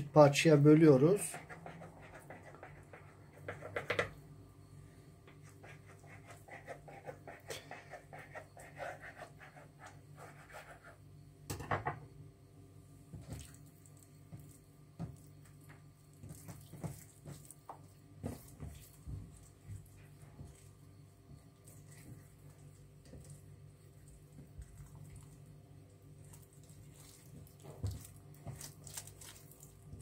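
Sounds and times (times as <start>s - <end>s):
steady low hum: 0.0s - 30.0s
hands handling dough: 26.3s - 30.0s.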